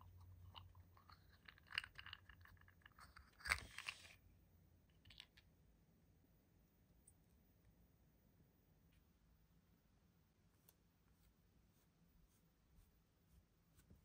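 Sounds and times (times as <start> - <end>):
toy packaging clicks and scrapes: 0.6 - 4.2
crinkly packaging rustle: 0.9 - 4.2.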